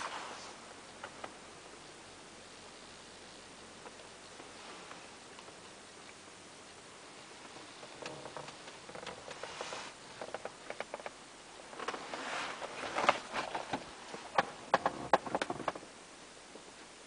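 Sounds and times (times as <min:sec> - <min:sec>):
brief hiss: 0:00.0 - 0:00.6
clicks and rustling: 0:07.4 - 0:15.9.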